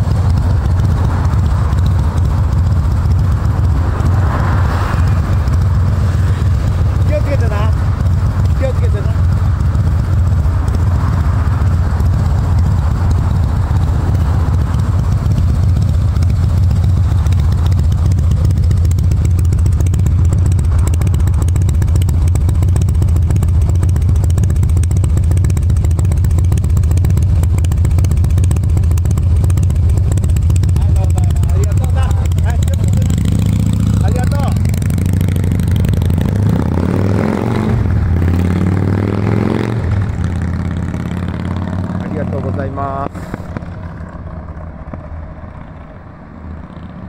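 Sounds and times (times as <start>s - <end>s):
motorcycle engine idling: 0.0s - 47.0s.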